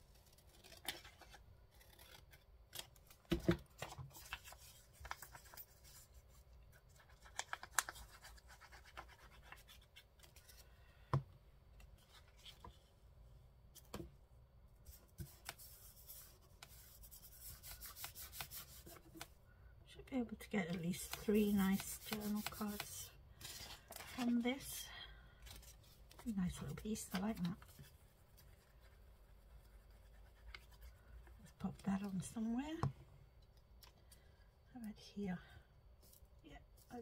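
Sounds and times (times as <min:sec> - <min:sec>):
paper rustling: 0:00.5 - 0:06.1, 0:20.7 - 0:24.7.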